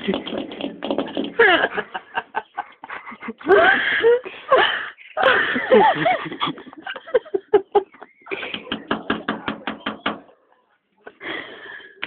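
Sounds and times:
people giggling: 1.0 - 9.6.

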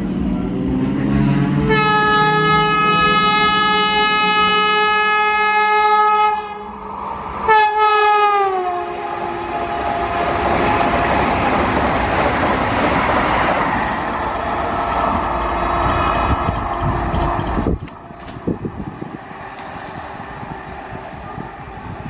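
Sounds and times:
train horn blast: 1.2 - 6.8, 7.4 - 11.2
train coaches rushing and rattling: 7.0 - 22.0.

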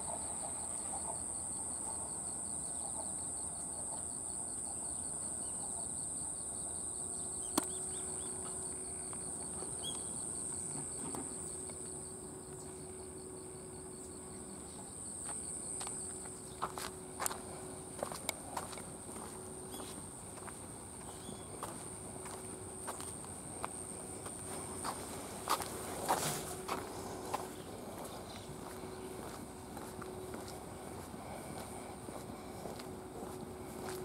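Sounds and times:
crickets chirring: 0.0 - 34.0
footsteps on pavement: 14.8 - 34.0.

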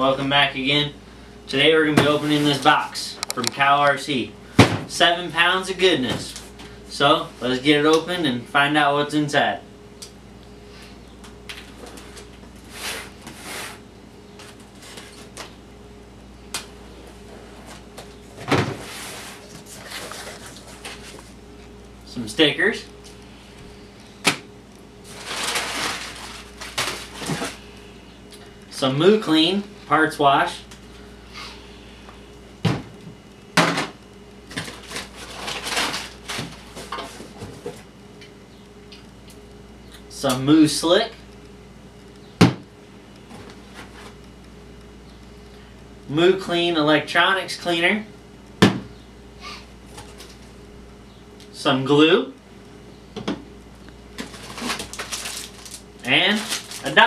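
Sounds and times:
cardboard and paper rustling: 18.4 - 21.4, 25.0 - 27.6, 34.5 - 37.8, 54.2 - 57.0
cardboard flaps tearing: 54.2 - 57.0.

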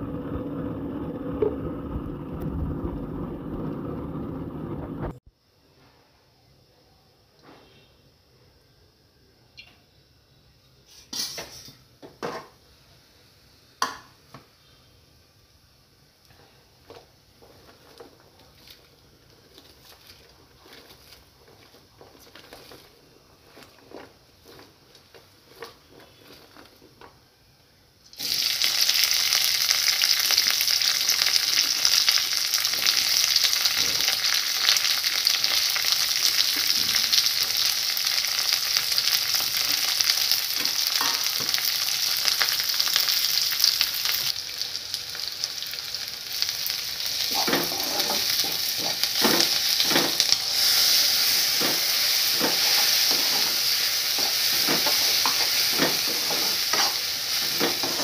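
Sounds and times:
onions frying in sizzling oil: 28.0 - 58.0
metal spoon scraping a pan: 47.3 - 58.0.

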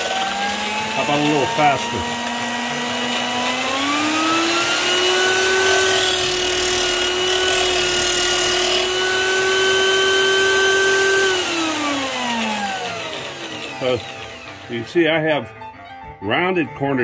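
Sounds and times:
drill motor whine: 0.0 - 15.4
wood sanding hiss: 3.8 - 15.2.

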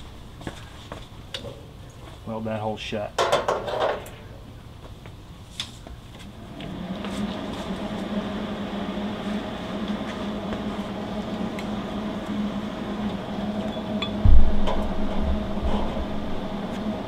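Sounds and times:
welder humming: 6.4 - 17.0.

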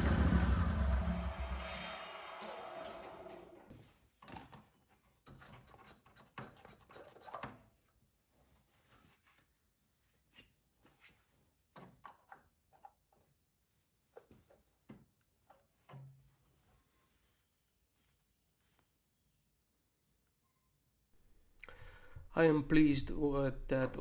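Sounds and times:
lawn tractor engine: 0.0 - 3.6.

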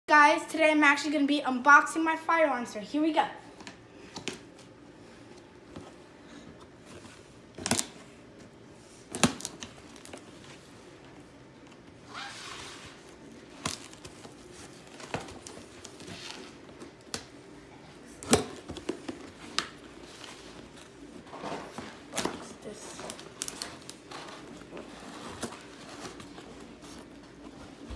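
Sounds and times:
packing tape tearing: 7.6 - 8.0, 9.1 - 10.2, 23.0 - 26.2.

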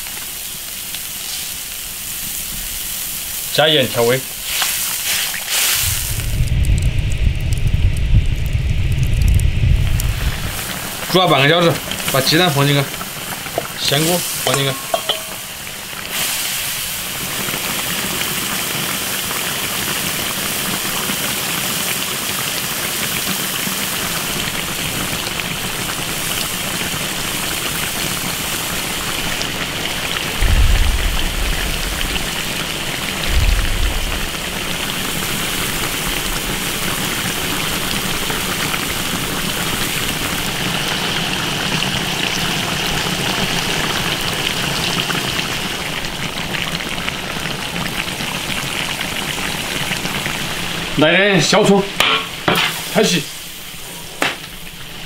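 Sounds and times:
sauce bubbling in a wok: 0.0 - 55.0
short low rumbles: 5.8 - 10.6, 30.4 - 32.4, 33.2 - 34.7.

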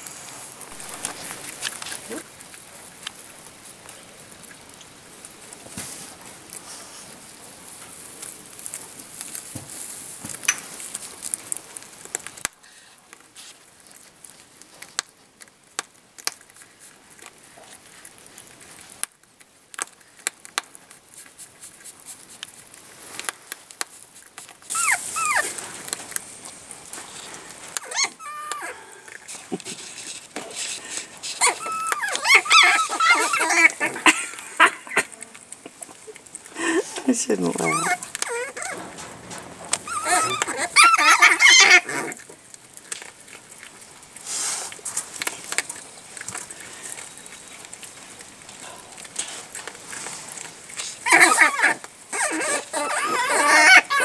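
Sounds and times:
hay rustling and crackling: 0.0 - 14.8, 21.0 - 51.1
background hiss: 0.0 - 54.0
animal squeaks: 24.7 - 25.6, 27.8 - 28.8, 31.4 - 35.0, 37.4 - 38.9, 39.8 - 42.2, 51.0 - 54.0.

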